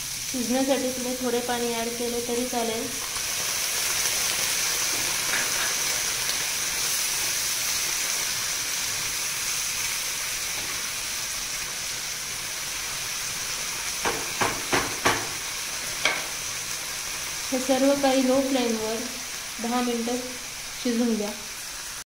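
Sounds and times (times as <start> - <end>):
food sizzling in a frying pan: 0.0 - 22.0
spatula knocking against pan: 14.0 - 15.4, 16.0 - 16.3.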